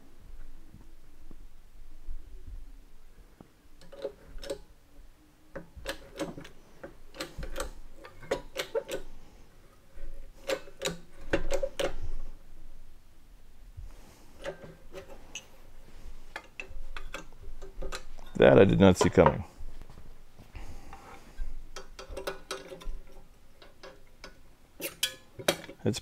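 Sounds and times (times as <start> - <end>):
metallic clicks and ticks: 5.5 - 9.1, 21.7 - 25.8.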